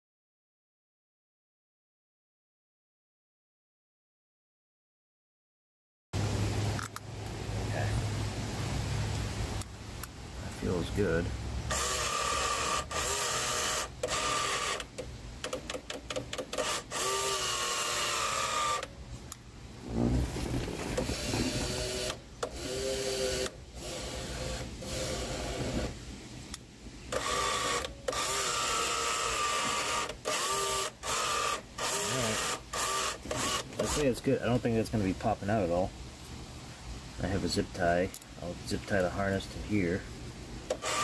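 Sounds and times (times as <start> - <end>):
power mirror motor whining: 11.7 - 15.0, 16.2 - 18.9, 19.9 - 26.0, 27.1 - 34.1, 40.7 - 41.0.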